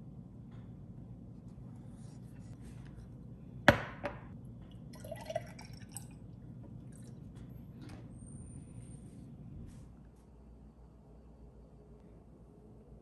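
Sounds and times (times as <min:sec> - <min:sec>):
milk pouring into glass jar: 0:04.8 - 0:06.2.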